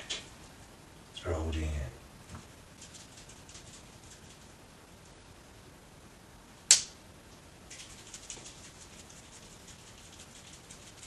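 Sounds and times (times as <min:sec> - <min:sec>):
glow stick snapping: 0:06.7 - 0:07.0.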